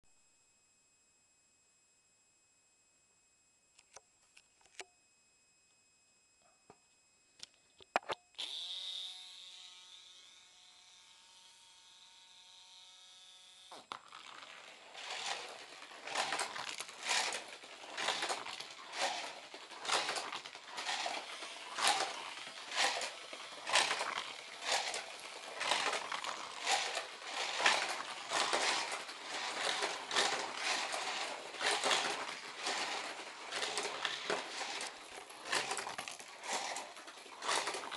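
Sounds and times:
small electric motor whining: 0:08.4 - 0:37.9
toy cars whirring on track: 0:08.4 - 0:37.9
toy cars being handled clicks: 0:13.9 - 0:37.9.

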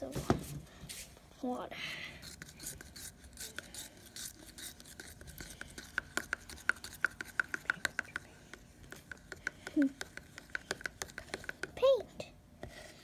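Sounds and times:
paintbrush stirring paint: 0:02.2 - 0:13.0
brush clicking against plastic cup: 0:04.9 - 0:11.8.

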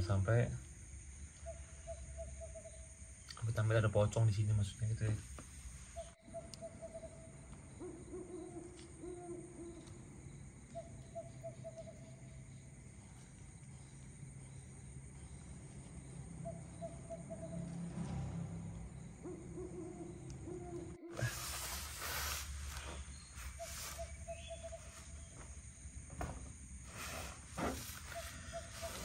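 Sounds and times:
night animal calling: 0:01.1 - 0:03.3, 0:05.9 - 0:17.9, 0:19.0 - 0:25.9, 0:26.9 - 0:29.0.

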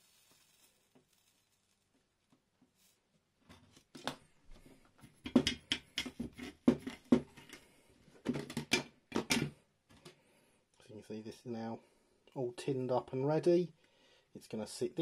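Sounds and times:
soldering iron knocking and scraping: 0:05.0 - 0:07.6, 0:08.2 - 0:10.0.

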